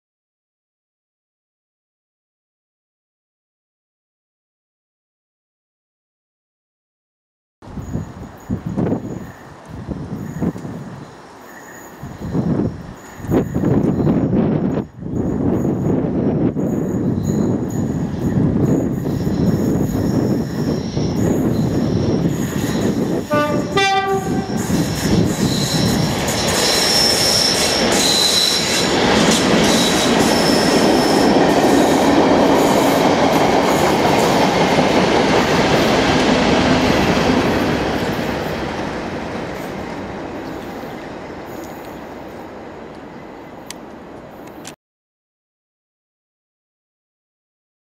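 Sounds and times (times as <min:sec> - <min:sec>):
diesel locomotive engine rumble: 0:07.6 - 0:44.7
high wheel squeal: 0:16.6 - 0:38.8
train horn blast: 0:23.3 - 0:24.7.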